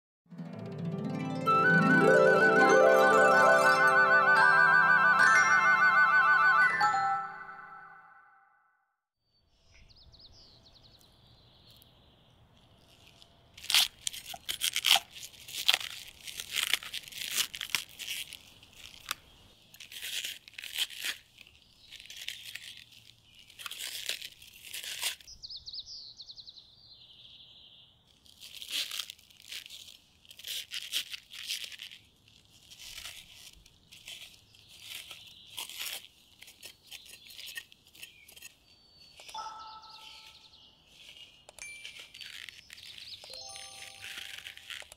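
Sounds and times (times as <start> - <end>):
knife crunching through cabbage: 12.5 - 25.4, 28.1 - 44.9
faint bird chirping: 36.8 - 44.6.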